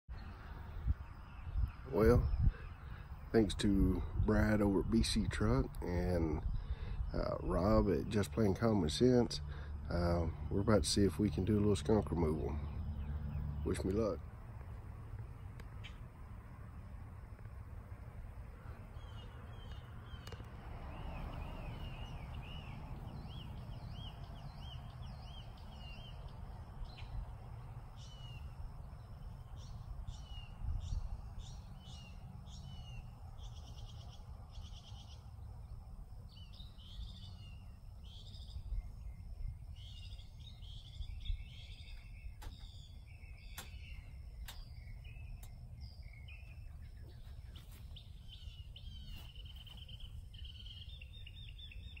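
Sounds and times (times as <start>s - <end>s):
birds chirping: 0.1s - 52.0s
steady low rumble: 0.1s - 52.0s
sharp clicks: 19.7s - 20.6s, 42.4s - 42.7s, 43.4s - 44.8s.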